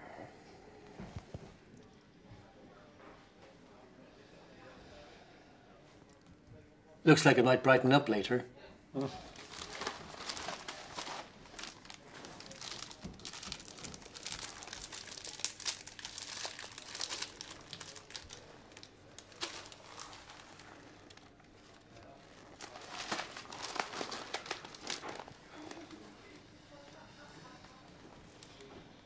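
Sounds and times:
newspaper rustling and crinkling: 9.2s - 26.0s.

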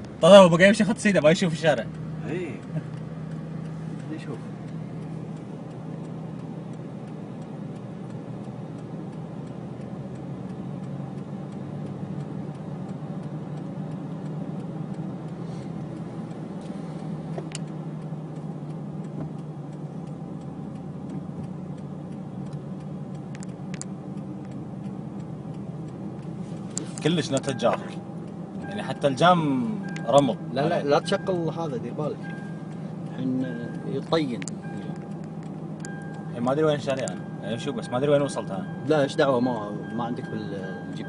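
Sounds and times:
car engine drone: 0.0s - 41.0s
road noise inside car: 0.0s - 41.0s
faint clicks: 32.2s - 37.3s.

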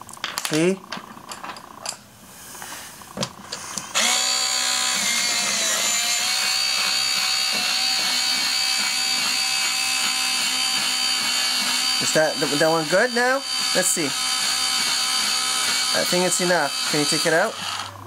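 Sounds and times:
electric pencil sharpener whine: 3.8s - 18.0s.

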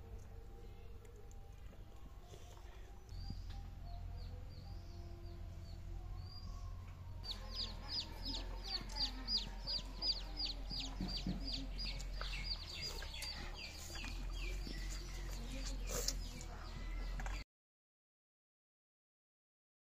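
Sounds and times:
chick peeping: 7.2s - 17.4s.

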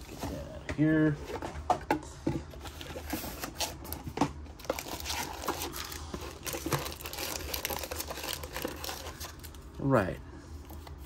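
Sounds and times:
plastic wrapping crinkling: 4.6s - 9.7s.

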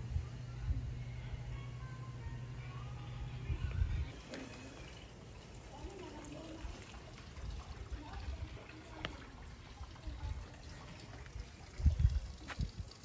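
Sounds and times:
faint trickling water: 4.0s - 13.0s.

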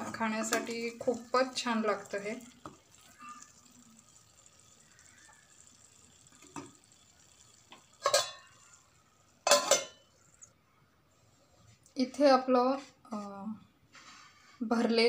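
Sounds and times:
spoon scraping metal pot: 7.8s - 8.7s.

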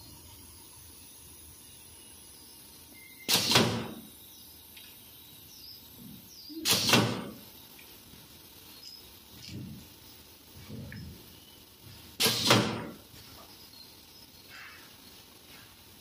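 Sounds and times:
pneumatic wire stripper clacking: 3.2s - 4.1s, 6.5s - 7.5s, 12.2s - 13.0s.

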